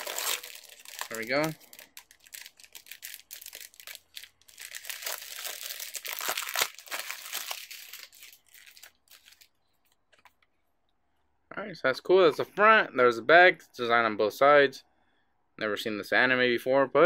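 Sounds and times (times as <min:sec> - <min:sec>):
packaging crinkling and tearing: 0:00.0 - 0:09.6.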